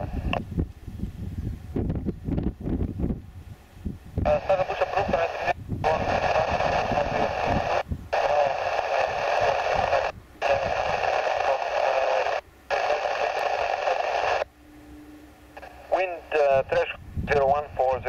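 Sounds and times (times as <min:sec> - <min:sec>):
radio static hiss: 0:00.0 - 0:00.5, 0:04.2 - 0:14.5, 0:15.4 - 0:18.0.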